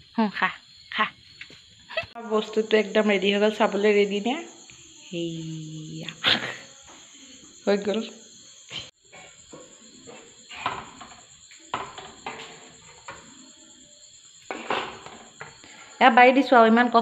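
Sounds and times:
cricket trilling: 0.0s - 17.0s
kitchen utensils scraping and clinking: 14.5s - 15.5s.

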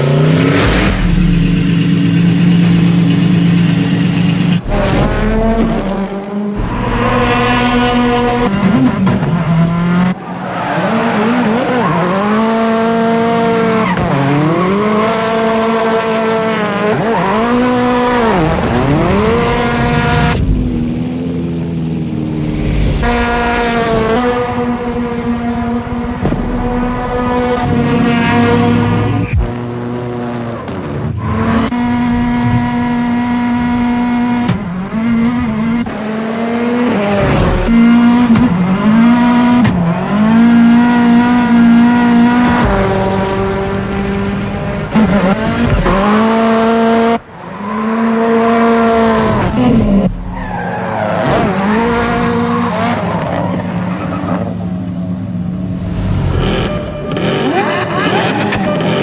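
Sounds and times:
car engine revving hard: 4.0s - 47.2s.

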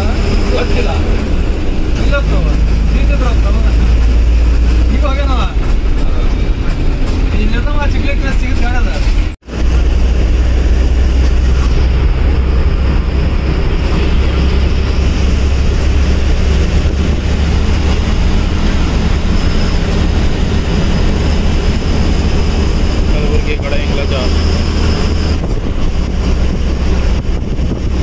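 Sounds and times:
bus engine droning: 0.0s - 28.0s.

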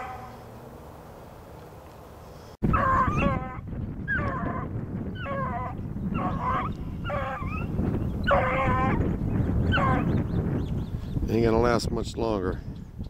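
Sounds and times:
hound baying: 0.0s - 0.5s, 2.7s - 10.1s.

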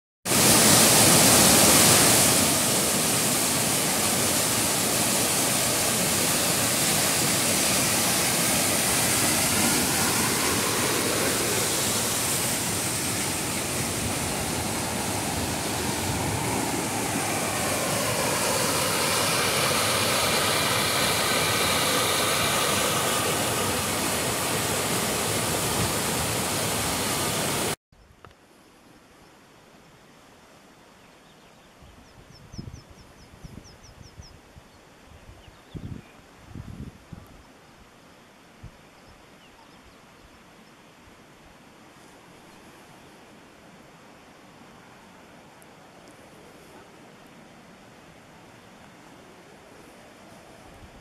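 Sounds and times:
waterfall rushing over rocks: 0.3s - 27.8s.

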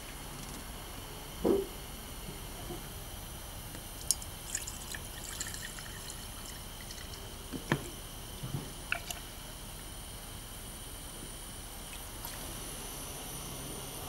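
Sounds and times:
liquid pouring into glass jar: 4.0s - 7.4s, 8.9s - 9.3s.

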